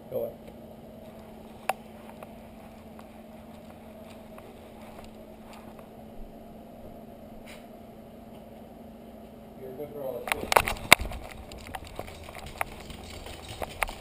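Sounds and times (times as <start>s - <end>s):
steady low hum: 0.0s - 14.0s
faint ticks and rubs: 10.9s - 14.0s.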